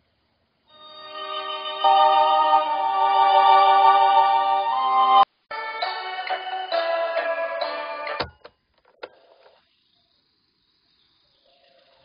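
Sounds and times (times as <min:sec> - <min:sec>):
music from cassette playback: 0:00.7 - 0:08.4.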